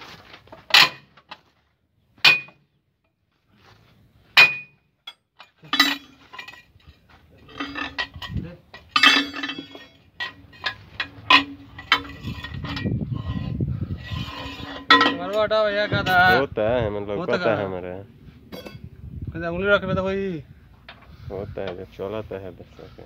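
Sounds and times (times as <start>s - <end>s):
steel bar clinking on metal: 4.4s - 6.6s, 7.5s - 12.9s, 14.3s - 15.4s.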